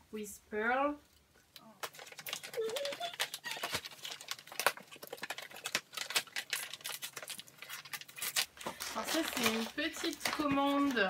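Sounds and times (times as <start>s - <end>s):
packaging rustling and crinkling: 1.8s - 11.0s.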